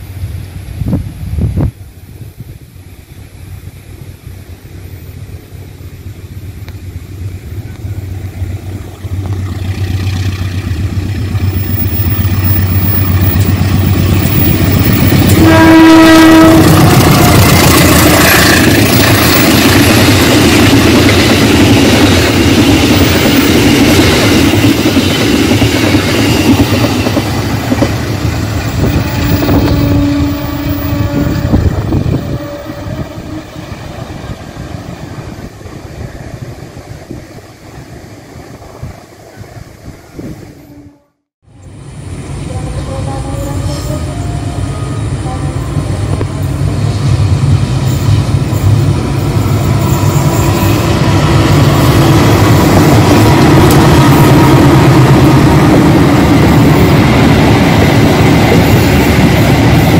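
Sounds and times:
diesel locomotive engine rumble: 0.0s - 59.9s
train horn: 14.2s - 19.5s, 28.7s - 33.9s, 40.6s - 41.2s, 42.4s - 46.6s.

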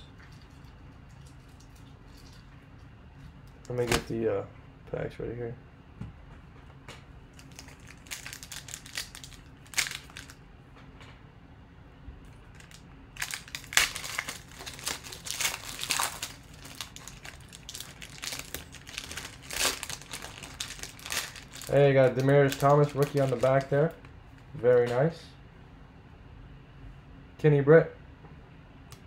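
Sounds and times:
foil wrappers crinkling: 7.4s - 10.4s, 12.5s - 24.0s.

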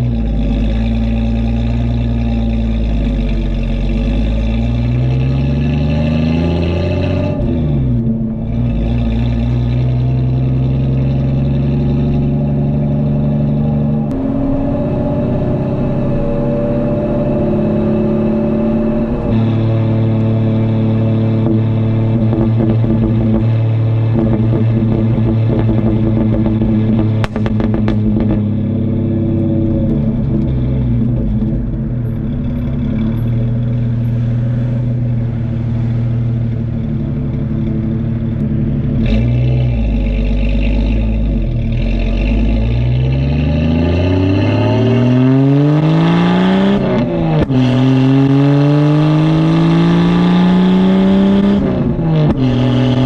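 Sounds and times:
car exhaust revving: 0.0s - 53.0s
sharp exhaust crack: 19.0s - 35.6s.

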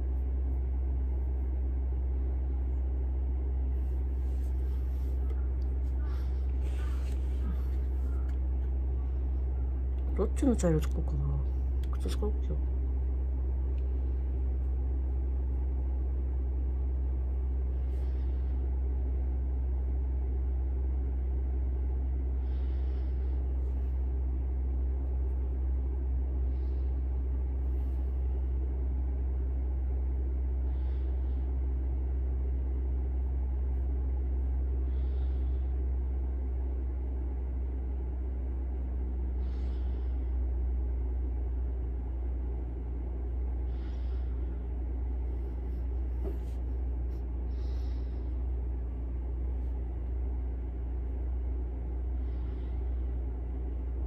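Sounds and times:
low rumbling hum: 0.0s - 54.0s
soft rustles: 3.8s - 8.8s, 45.2s - 47.4s.

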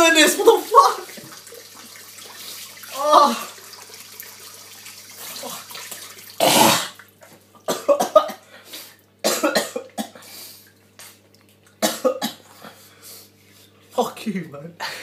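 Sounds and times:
man coughing: 7.7s - 8.5s, 9.2s - 10.2s, 11.8s - 12.8s.

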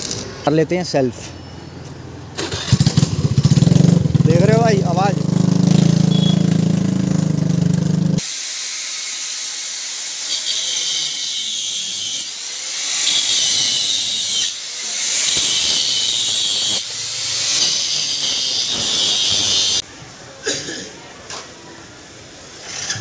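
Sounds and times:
scooter engine running: 2.4s - 8.2s
angle grinder cutting metal: 4.6s - 19.8s.

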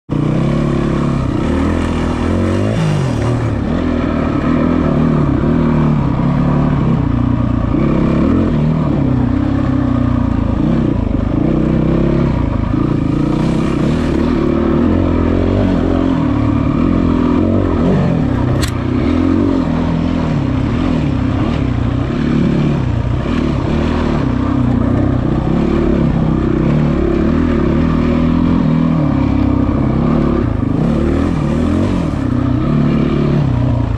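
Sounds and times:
motorcycle engine revving: 0.1s - 33.9s
sharp click: 18.5s - 18.9s.

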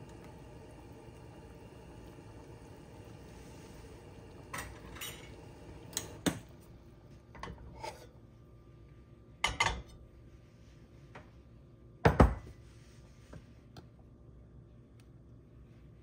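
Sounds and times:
dishes clinking: 4.5s - 6.4s, 9.4s - 10.0s.

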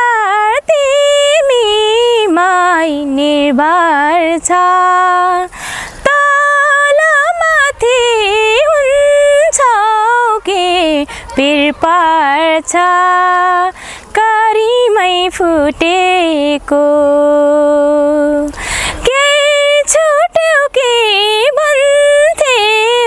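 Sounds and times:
woman singing unaccompanied: 0.0s - 23.0s.

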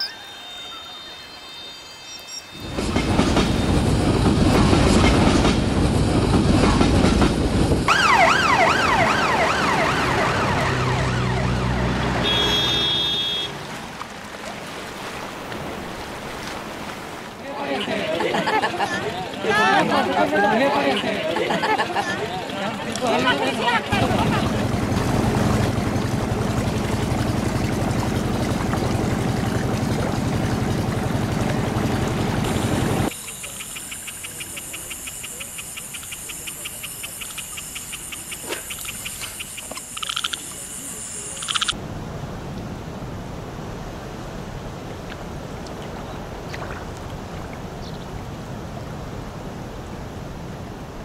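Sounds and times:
frogs and insects trilling: 0.0s - 2.7s, 33.1s - 41.8s
boat motor humming: 0.0s - 41.8s
wind and water wash: 2.5s - 51.0s.

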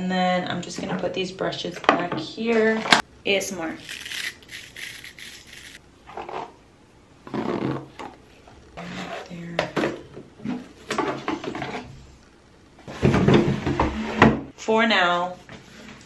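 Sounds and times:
plastic hairbrushes clattering: 3.8s - 5.8s.

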